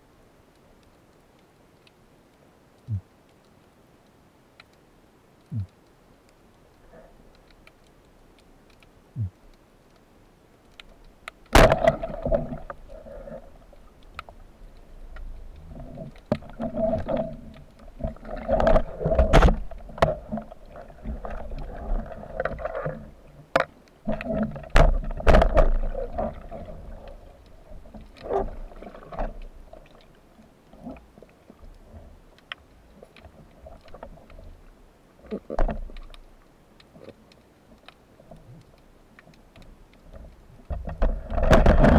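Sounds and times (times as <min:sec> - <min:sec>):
water sloshing against camera housing: 0:15.6 - 0:30.1.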